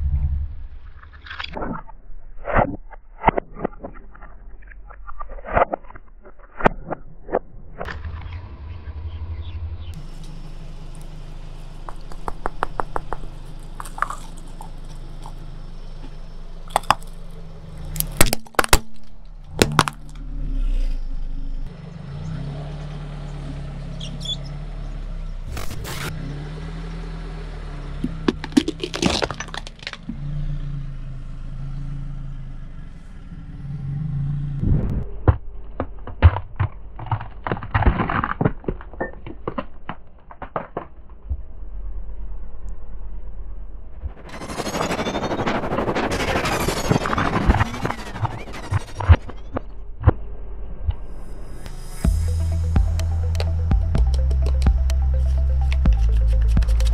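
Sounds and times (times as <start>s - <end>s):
car engine running: 7.9s - 37.7s, 41.2s - 56.9s
tyre crushing hard objects: 11.8s - 15.4s, 16.7s - 20.1s, 28.3s - 30.1s
pumpkin cracking under wheel: 11.8s - 15.5s, 16.7s - 20.2s, 28.0s - 30.2s, 35.2s - 41.2s.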